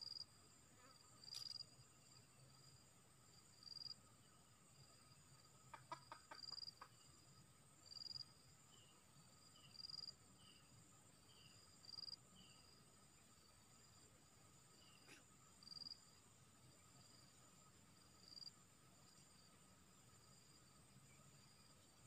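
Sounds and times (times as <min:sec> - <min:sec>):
insect chorus droning: 0:00.0 - 0:22.0
short insect chirp: 0:00.0 - 0:22.0
junglefowl clucking softly: 0:05.6 - 0:07.0.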